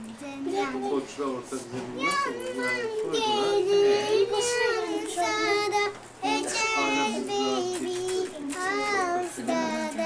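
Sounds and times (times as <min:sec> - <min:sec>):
girl singing: 0:02.0 - 0:10.0.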